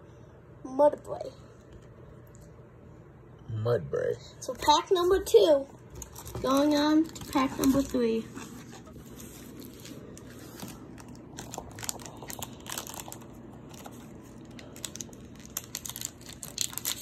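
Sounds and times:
foil wrapper crinkling and tearing: 5.9s - 17.0s.

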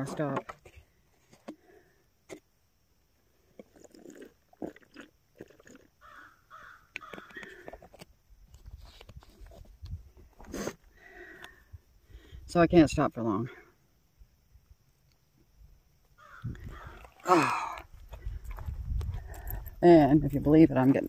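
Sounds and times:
crow cawing: 6.0s - 7.6s, 16.2s - 17.1s.

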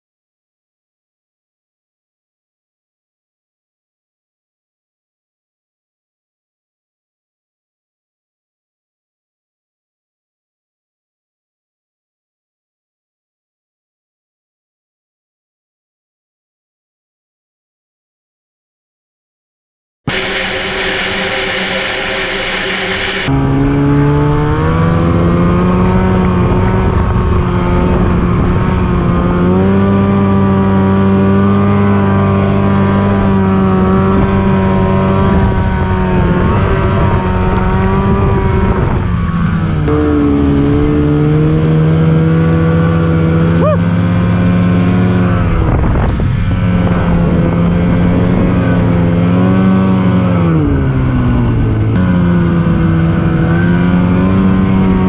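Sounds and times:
snowmobile engine revving: 20.1s - 55.0s.

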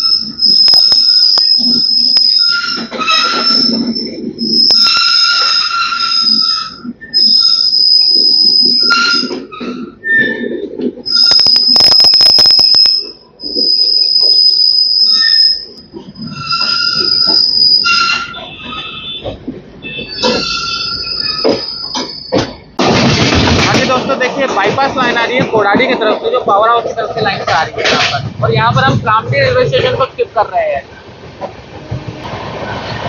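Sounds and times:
train wheels squealing on rails: 0.0s - 22.8s.

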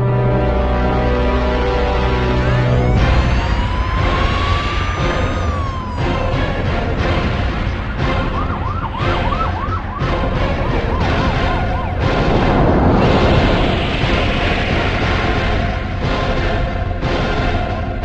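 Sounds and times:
loud dense background track: 0.0s - 18.0s
emergency siren yelping: 1.2s - 13.8s.

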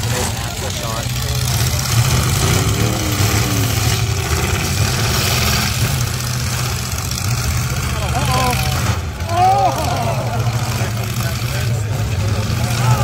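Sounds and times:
car engines droning: 0.0s - 13.0s.

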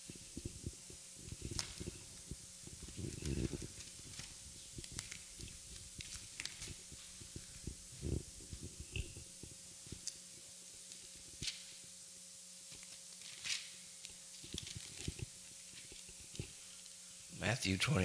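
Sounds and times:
book pages turning: 1.3s - 7.7s, 12.7s - 16.9s
paper rustling: 1.3s - 7.7s, 12.7s - 16.9s.

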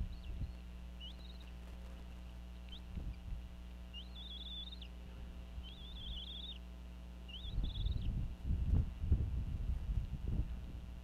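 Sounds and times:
eagle calling: 0.0s - 8.2s
low hum: 0.0s - 11.0s.

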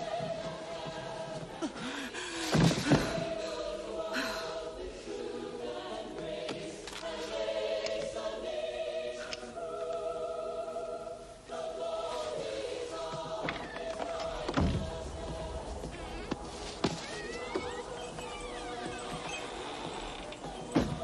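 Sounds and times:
choir singing long notes: 0.0s - 1.9s, 2.7s - 21.0s
loud thumps: 13.4s - 18.4s.

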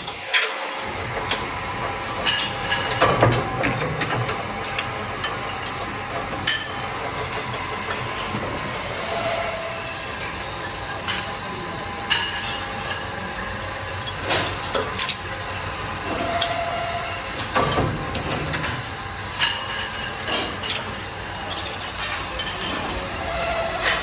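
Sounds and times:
machinery hum: 0.0s - 24.0s
metallic clanks and clinks: 17.4s - 24.0s.

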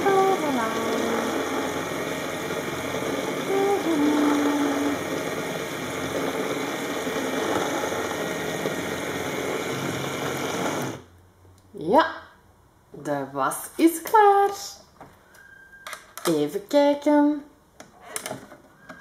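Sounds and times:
toy washing machine whirring: 0.0s - 11.0s.

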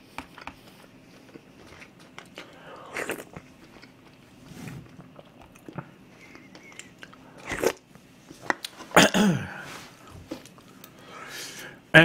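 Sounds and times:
soft chewing: 0.0s - 9.0s
slurping broth from spoon: 4.4s - 5.2s.

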